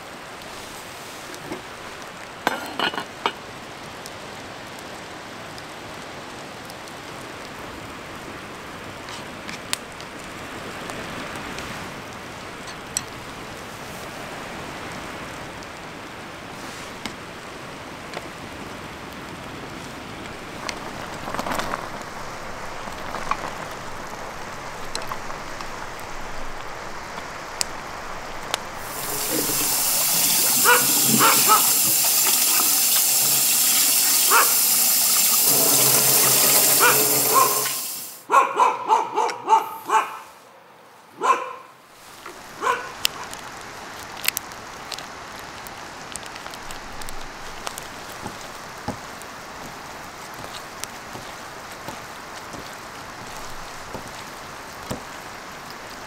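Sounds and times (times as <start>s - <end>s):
low hiss of outdoor ambience: 0.0s - 56.0s
loud bright rushing hiss: 28.7s - 38.3s.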